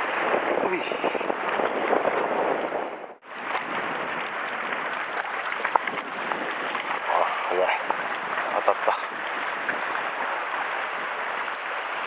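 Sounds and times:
sea water sloshing against rocks: 0:00.0 - 0:12.0.

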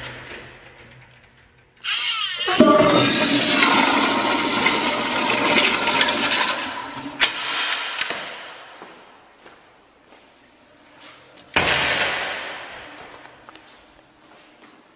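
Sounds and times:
toilet flushing: 0:01.9 - 0:07.8.

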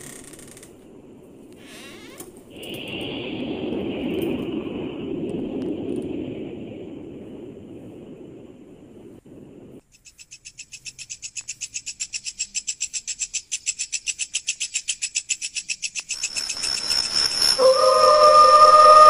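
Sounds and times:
hiss: 0:01.6 - 0:07.0
high-pitched pulsing trill: 0:16.1 - 0:19.0
sustained wailing tone: 0:17.3 - 0:19.0.

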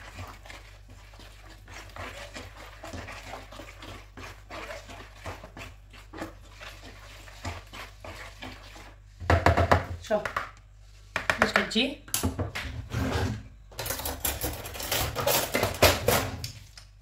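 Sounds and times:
hand squelching through wet marinade: 0:00.0 - 0:09.2.

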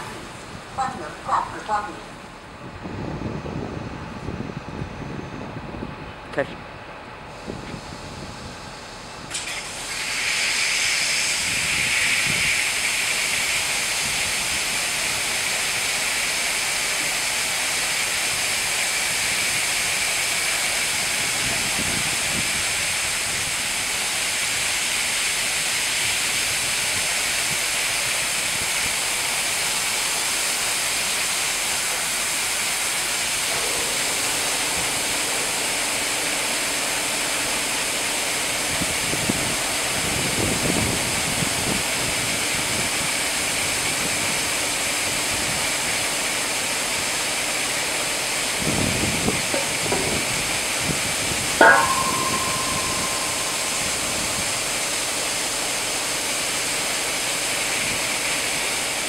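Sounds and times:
high-pressure water spray hissing: 0:09.3 - 0:35.9.

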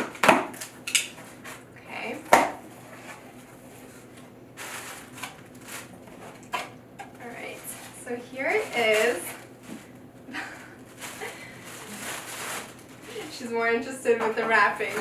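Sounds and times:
cardboard flaps scraping and rustling: 0:02.8 - 0:06.5, 0:10.9 - 0:13.4.

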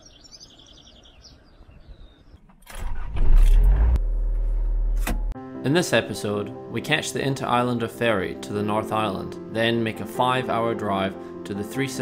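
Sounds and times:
birds chirping faintly: 0:00.0 - 0:02.5
engine cranking and starting: 0:02.5 - 0:05.4.

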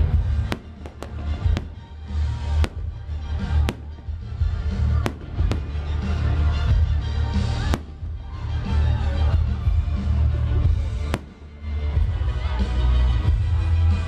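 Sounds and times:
firework shells bursting: 0:00.4 - 0:04.0.

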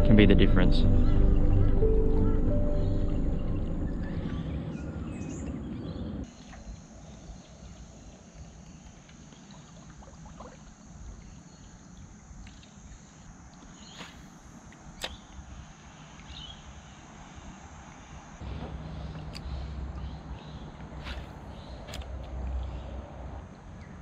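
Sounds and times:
background music: 0:00.0 - 0:04.4
high-pitched drone: 0:00.0 - 0:05.1.

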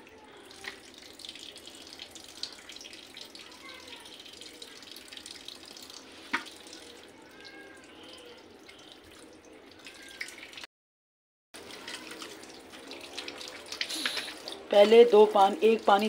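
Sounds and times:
tap water splashing into sink: 0:06.2 - 0:06.9.

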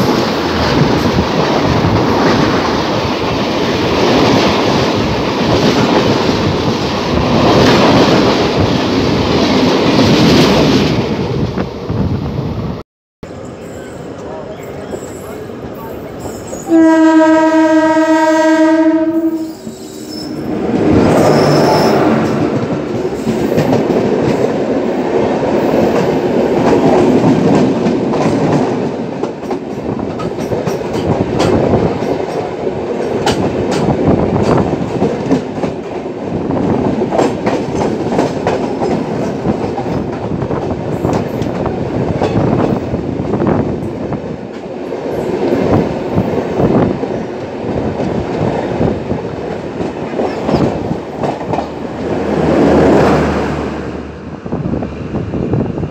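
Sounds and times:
passing train rushing: 0:00.0 - 0:55.9
locomotive horn blast: 0:16.6 - 0:20.5.

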